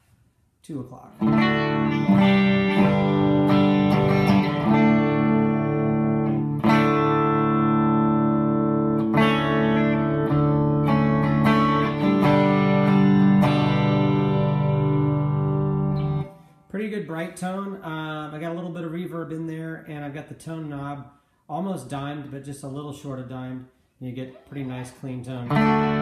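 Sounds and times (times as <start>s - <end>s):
clean electric guitar chords: 1.2s - 16.6s, 25.4s - 26.0s.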